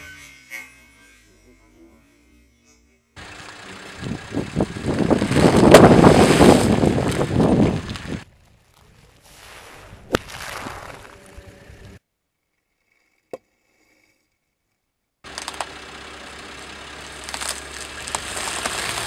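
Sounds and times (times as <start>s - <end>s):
plastic bag crackling: 3.2s - 12.0s, 15.3s - 15.8s, 16.4s - 19.0s
corn snacks crunching: 15.3s - 15.7s, 17.1s - 19.0s.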